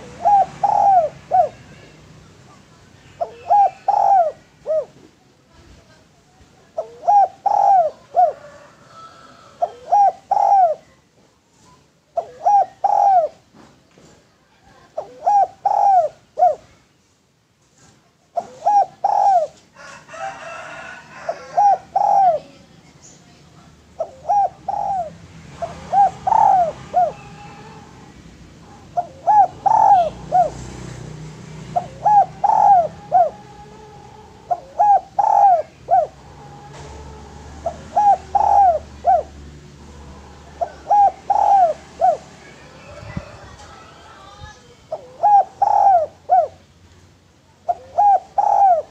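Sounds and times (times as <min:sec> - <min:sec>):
dove cooing: 0:00.0 - 0:02.0, 0:03.1 - 0:05.1, 0:06.7 - 0:10.9, 0:12.2 - 0:13.4, 0:14.6 - 0:16.8, 0:18.4 - 0:22.7, 0:23.9 - 0:46.6, 0:47.6 - 0:48.9.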